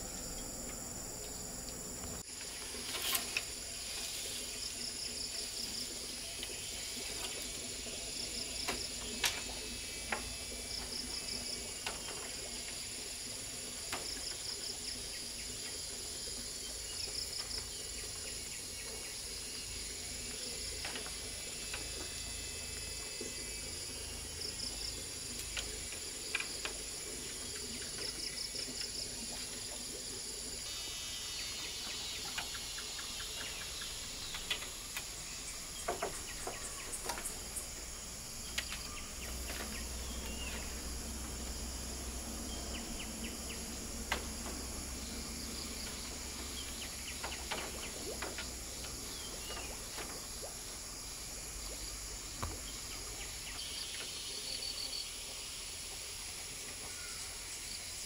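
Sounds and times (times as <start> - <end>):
insects chirping: 0.0 - 58.0
bamboo poles knocking: 35.8 - 37.6.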